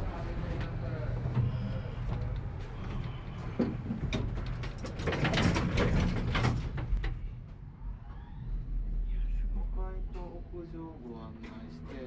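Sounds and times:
knocks and clatters: 0:03.5 - 0:07.2.

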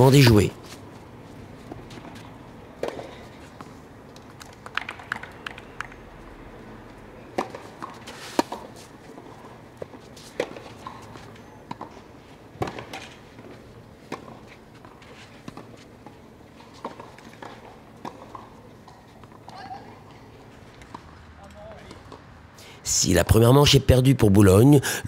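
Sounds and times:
faint outdoor background: 0:00.0 - 0:25.0
racket striking tennis ball: 0:07.3 - 0:11.0, 0:12.6 - 0:13.5
tennis ball bouncing: 0:07.3 - 0:20.2.

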